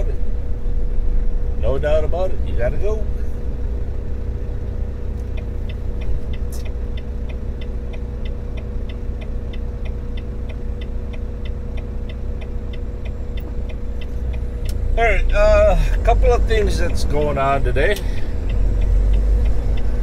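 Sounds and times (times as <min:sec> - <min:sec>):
truck engine humming: 0:00.0 - 0:20.0
turn signal ticking: 0:00.0 - 0:20.0.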